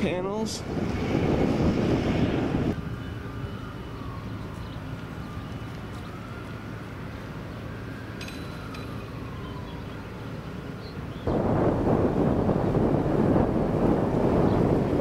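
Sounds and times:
wind buffeting microphone: 0.0 - 2.9, 8.7 - 15.0
low urban hum: 0.0 - 15.0
distant siren wailing: 0.8 - 15.0.

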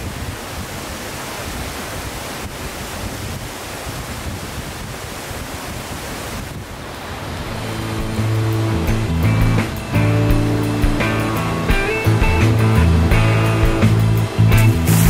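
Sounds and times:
waterfall rushing: 0.0 - 15.0
background music: 7.5 - 15.0.

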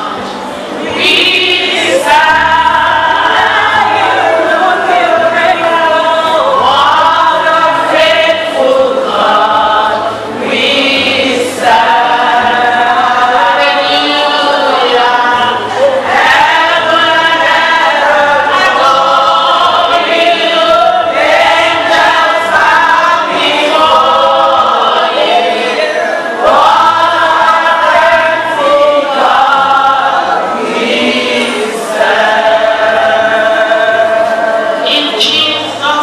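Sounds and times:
congregation singing: 0.0 - 36.0
woman singing into a microphone: 33.6 - 36.0.

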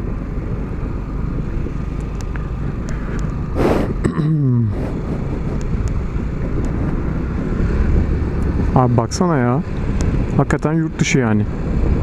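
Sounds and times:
wind rumble: 0.0 - 12.0
short rush of noise: 3.5 - 4.0.

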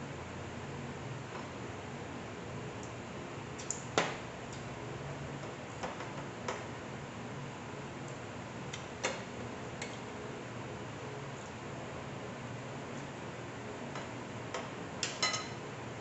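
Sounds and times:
low background hum: 0.0 - 16.0
forks clinking on plates: 15.0 - 15.6.

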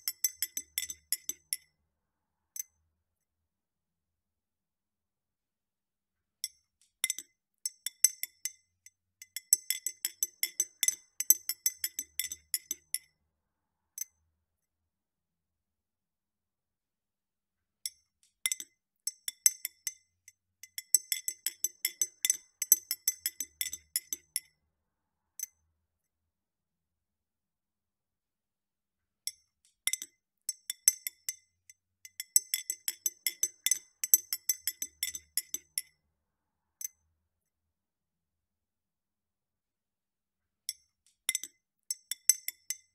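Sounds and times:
spoon stirring ice in glass: 21.0 - 24.4, 32.4 - 35.7.

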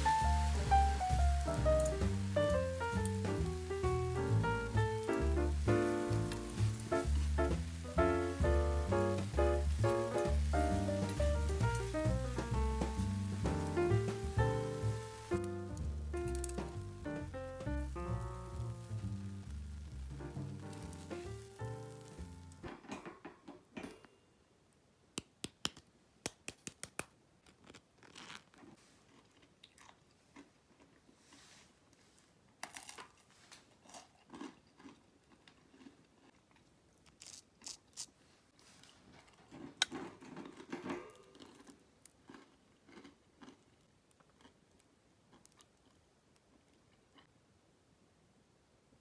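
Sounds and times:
crisp toast crunching: 27.4 - 31.1, 32.6 - 47.3.

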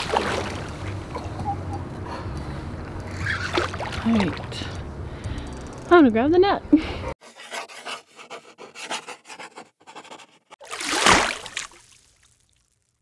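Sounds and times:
pencil scratching on paper: 7.2 - 10.6.

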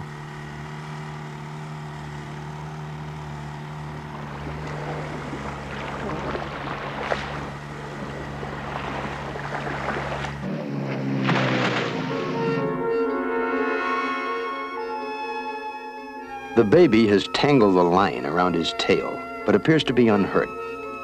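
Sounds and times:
outboard motors droning: 0.0 - 21.0
water rushing and splashing: 2.8 - 12.5.

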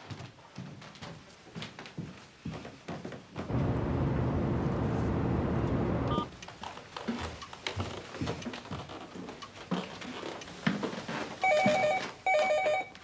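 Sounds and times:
telephone ringing: 11.4 - 13.0.

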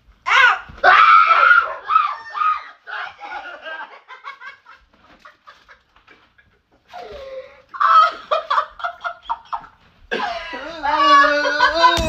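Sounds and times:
person cackling laughter: 7.8 - 12.0.

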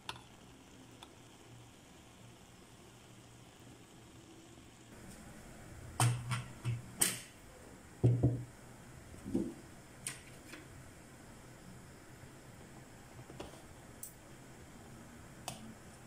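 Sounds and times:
faint steady hum: 0.0 - 16.0
glass knocking on wooden desk: 8.0 - 8.4.

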